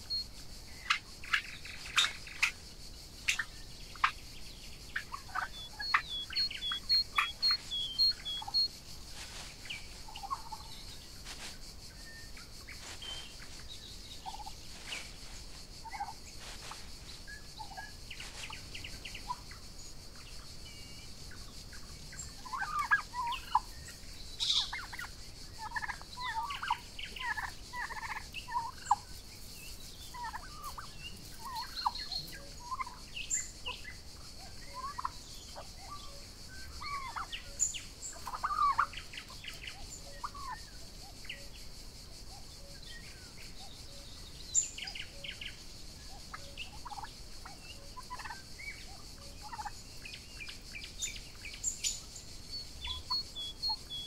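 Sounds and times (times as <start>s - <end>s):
steady high hiss: 0.0s - 54.0s
turkeys calling: 0.8s - 2.5s, 5.0s - 11.5s, 14.2s - 19.5s, 22.4s - 23.7s, 24.4s - 29.0s, 30.1s - 33.0s, 34.7s - 36.0s, 36.8s - 37.4s, 38.1s - 39.4s, 40.2s - 40.6s, 46.4s - 47.1s, 47.7s - 49.7s.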